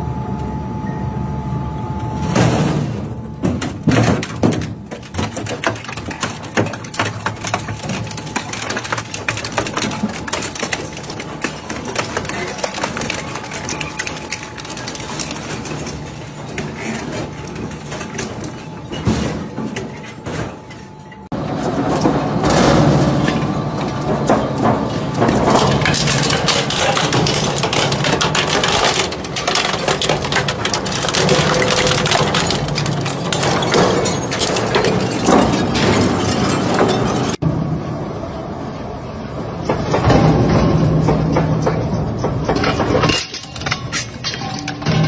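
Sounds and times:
shredder grinding scrap metal: 2.5s - 20.2s, 21.4s - 37.4s
metal cracking and snapping: 3.4s - 20.6s, 21.6s - 37.4s, 39.7s - 45.0s.

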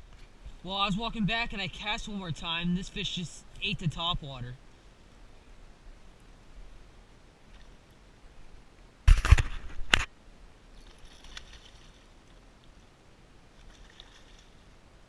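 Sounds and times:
fish splashing and thrashing: 10.8s - 12.2s, 13.6s - 14.6s.

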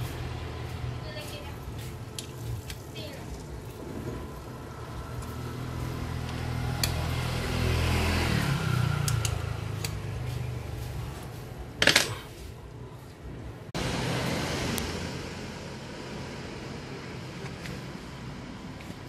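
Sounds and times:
tool clattering on wooden bench: 11.8s - 12.3s.

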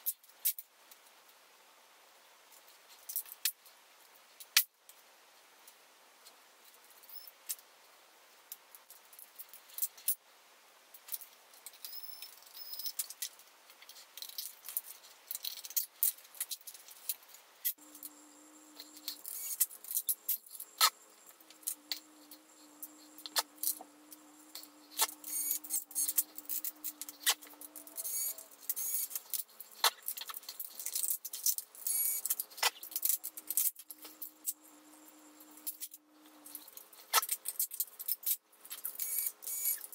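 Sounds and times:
laptop parts clicking and rattling: 11.0s - 34.6s, 35.4s - 39.9s
steady low hum: 17.8s - 29.8s, 33.2s - 36.8s.

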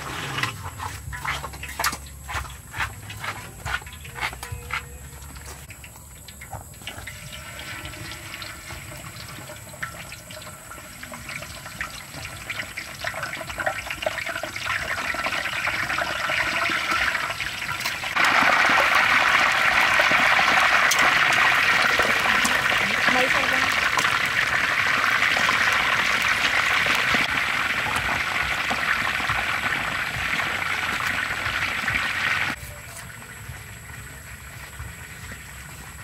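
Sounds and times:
oil sizzling and bubbling: 0.0s - 36.0s.

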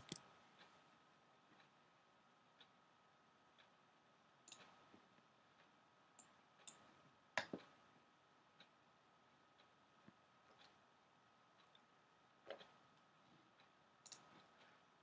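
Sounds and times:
computer mouse clicks: 0.0s - 0.3s, 4.5s - 4.9s, 6.2s - 7.8s, 14.0s - 14.8s.

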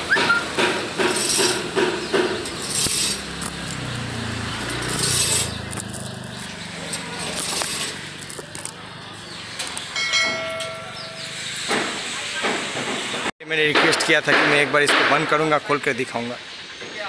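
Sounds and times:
steel shutter slats rattling: 0.4s - 8.6s.

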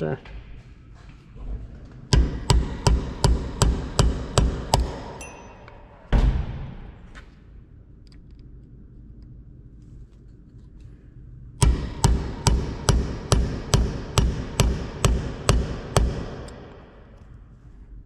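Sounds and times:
hammer striking metal punch: 2.1s - 6.6s, 11.6s - 17.0s.

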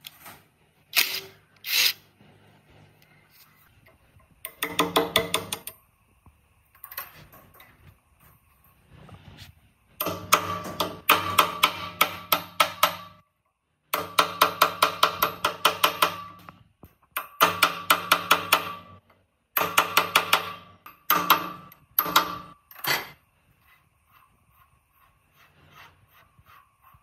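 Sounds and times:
metal-on-metal tapping: 4.4s - 5.8s, 14.0s - 23.2s.

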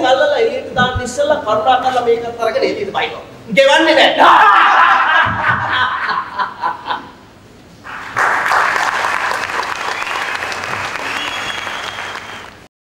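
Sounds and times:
audience applause: 7.9s - 12.7s.

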